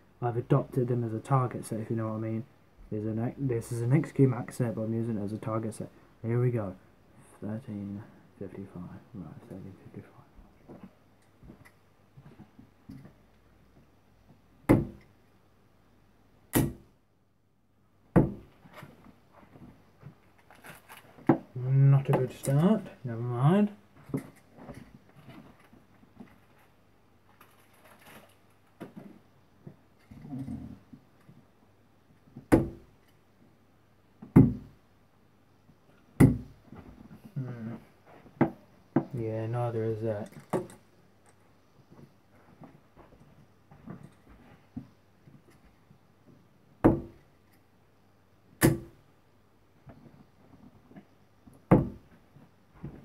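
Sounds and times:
darts thunking into dartboard: 0:14.7 - 0:15.0, 0:16.5 - 0:16.9, 0:18.1 - 0:18.5, 0:32.5 - 0:32.8, 0:34.3 - 0:34.7, 0:36.2 - 0:36.5, 0:48.6 - 0:49.0.

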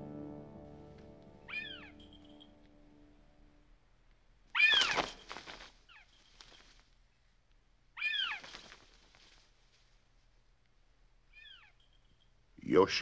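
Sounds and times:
hawk crying: 0:01.5 - 0:02.4, 0:04.5 - 0:05.6, 0:08.0 - 0:08.7.

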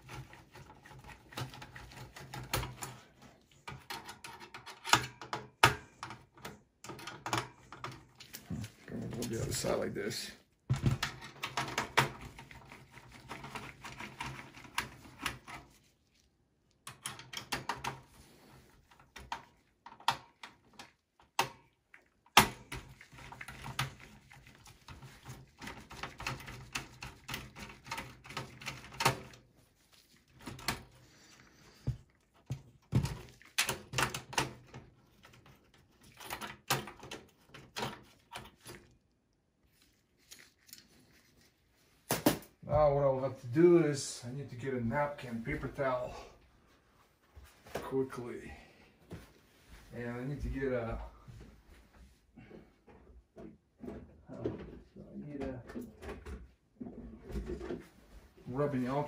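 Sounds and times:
metal and plastic clicks and rattles: 0:00.0 - 0:09.8, 0:10.7 - 0:15.7, 0:16.8 - 0:18.1, 0:18.9 - 0:29.5, 0:30.3 - 0:31.4, 0:32.3 - 0:39.1.

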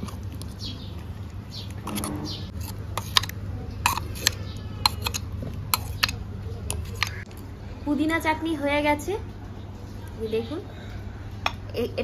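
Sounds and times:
spoon scraping paste from jar: 0:01.6 - 0:07.2.

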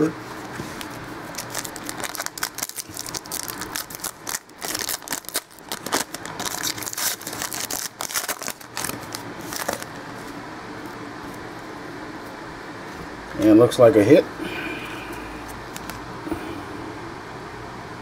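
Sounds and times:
low steady hum: 0:00.0 - 0:18.0
foil wrapper crinkling: 0:00.8 - 0:10.3.

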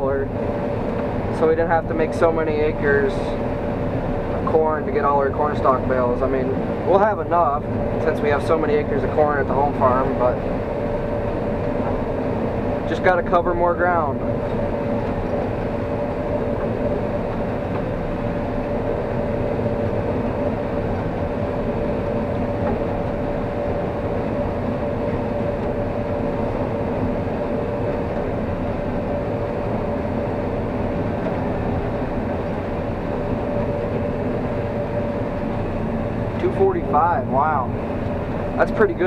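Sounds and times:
combine harvester droning: 0:00.0 - 0:39.0.

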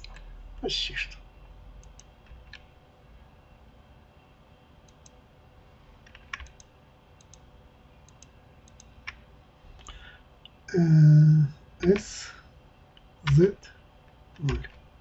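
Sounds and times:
faint steady hum: 0:00.0 - 0:15.0
computer mouse and keyboard clicks: 0:01.8 - 0:02.7, 0:04.9 - 0:05.2, 0:06.0 - 0:07.4, 0:08.0 - 0:09.2, 0:14.4 - 0:14.8.

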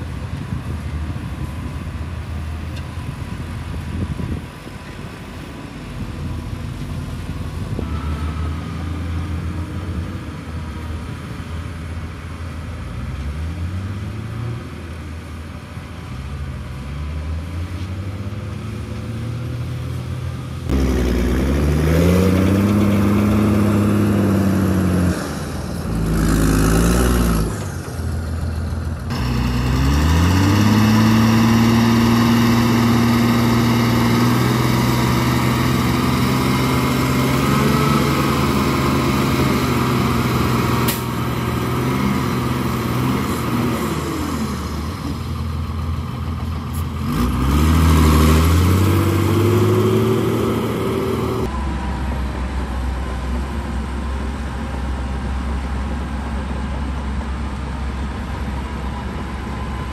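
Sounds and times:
heavy diesel engine revving: 0:16.1 - 0:55.7.

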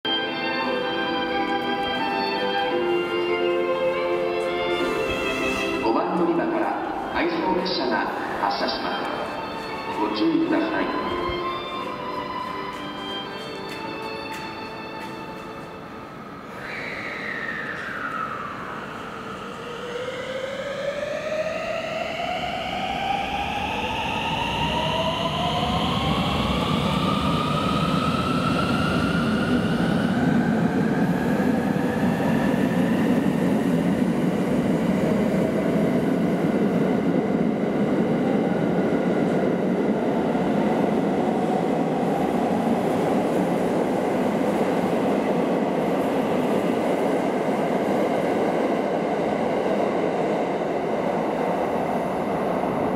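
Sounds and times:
rumble of train wheels: 0:00.8 - 0:16.7.

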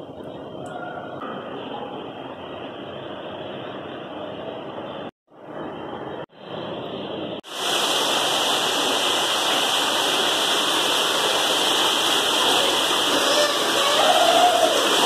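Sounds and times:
dull steady noise: 0:00.0 - 0:15.0
waterfall rushing and splashing: 0:07.5 - 0:15.0.

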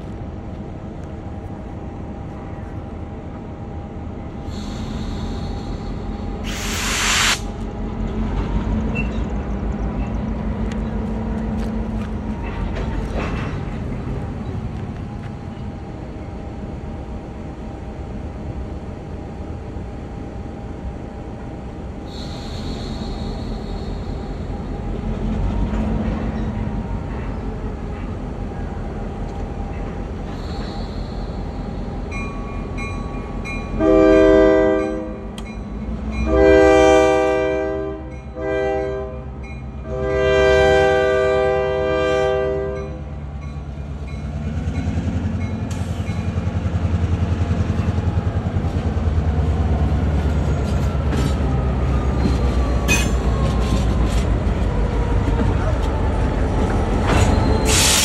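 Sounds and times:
locomotive air horn: 0:33.8 - 0:35.3, 0:36.2 - 0:43.0.

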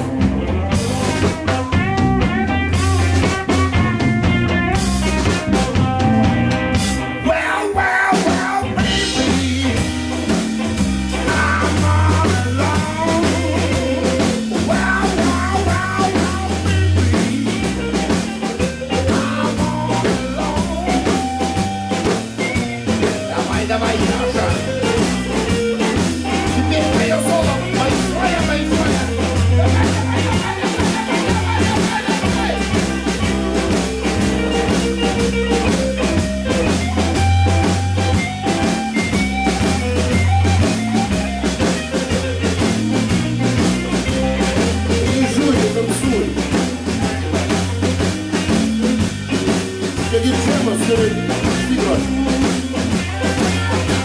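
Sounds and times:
bass guitar: 0:00.0 - 0:54.0
drum kit beat: 0:00.0 - 0:54.0
electric guitars: 0:00.0 - 0:54.0
sliding bent lead guitar notes: 0:00.0 - 0:54.0.

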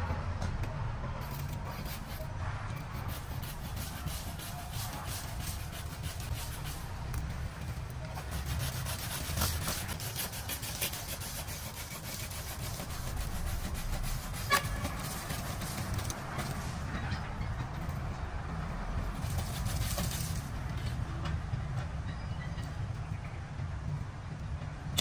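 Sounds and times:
hand saw rasping through wood: 0:02.9 - 0:06.8, 0:08.2 - 0:16.2.

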